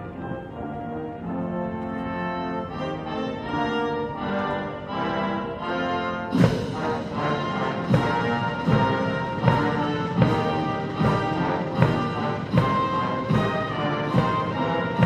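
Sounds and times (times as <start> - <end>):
brass band playing chords: 0.0 - 15.0
heavy drum beats: 6.3 - 15.0.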